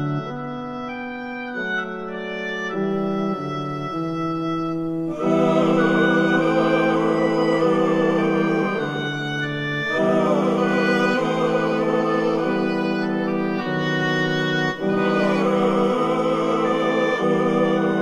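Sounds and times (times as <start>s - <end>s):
gothic music slow chords: 1.8s - 18.0s.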